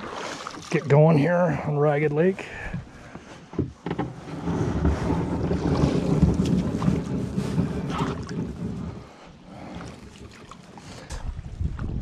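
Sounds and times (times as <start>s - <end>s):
paddle splashing water: 0.0s - 12.0s
wind rumbling on microphone: 4.1s - 12.0s.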